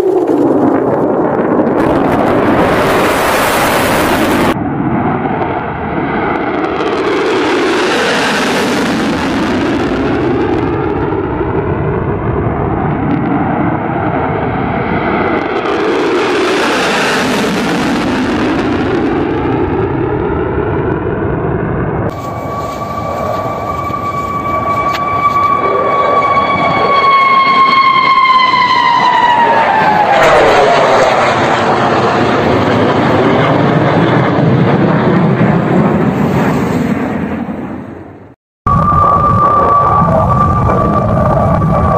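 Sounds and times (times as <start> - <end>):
jet engine roaring in afterburner: 0.0 - 41.9.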